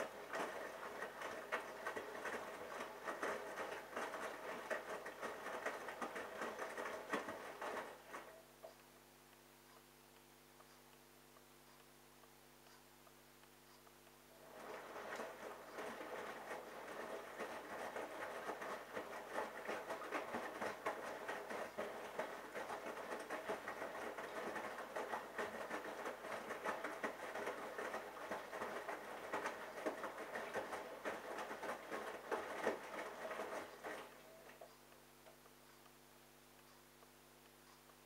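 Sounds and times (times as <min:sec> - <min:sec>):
washing machine drum tumbling laundry: 0:00.0 - 0:08.4, 0:14.4 - 0:34.7.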